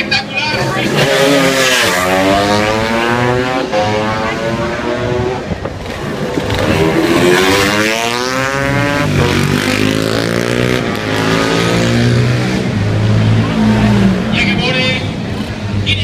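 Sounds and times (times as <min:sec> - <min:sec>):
racing motorcycle engines accelerating: 0:00.0 - 0:16.0.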